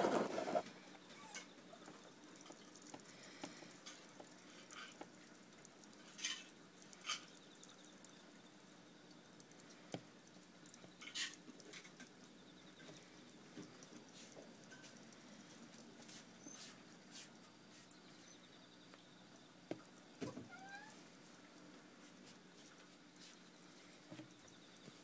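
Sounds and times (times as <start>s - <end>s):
light scrapes: 0.0s - 0.6s.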